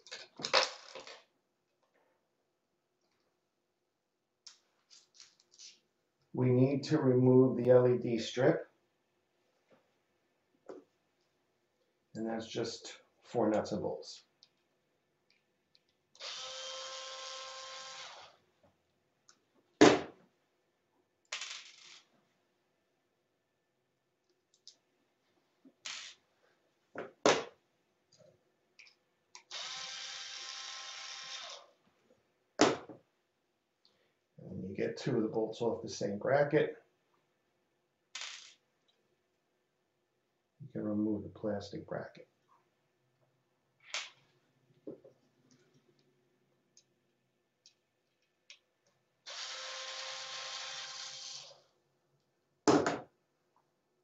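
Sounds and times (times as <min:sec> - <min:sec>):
electric screwdriver running: 0:16.2 - 0:18.3, 0:29.5 - 0:31.7, 0:49.3 - 0:51.6
tools and parts clicking: 0:21.3 - 0:22.1.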